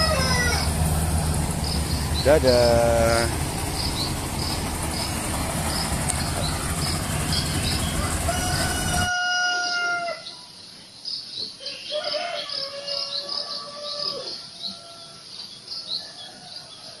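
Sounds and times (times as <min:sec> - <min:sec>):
rooster crowing: 0:00.0 - 0:01.4, 0:06.4 - 0:10.3, 0:11.6 - 0:15.3
small birds chirping: 0:00.0 - 0:09.1
combine harvester machine noise: 0:00.0 - 0:09.2.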